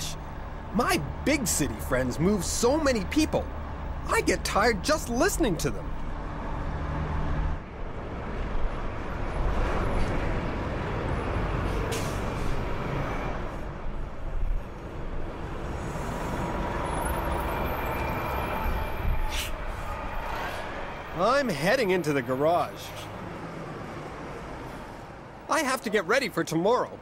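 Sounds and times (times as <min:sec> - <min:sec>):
bus diesel engine passing: 0:00.0 - 0:25.5
air brakes hissing: 0:11.7 - 0:12.6, 0:19.2 - 0:20.8.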